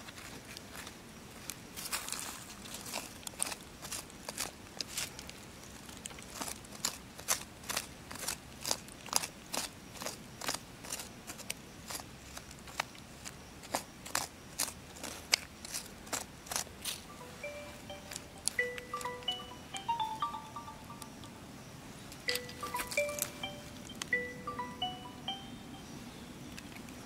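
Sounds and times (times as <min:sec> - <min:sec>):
stick scraping loose soil: 0:01.8 - 0:17.1.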